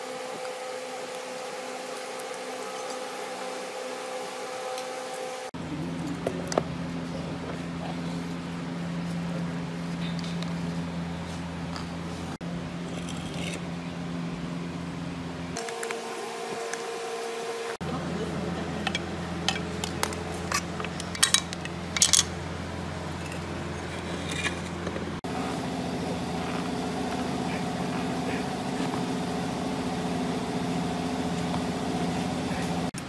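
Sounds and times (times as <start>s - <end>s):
steady background hum: 0.0s - 33.0s
metal tools clinking: 18.8s - 22.4s.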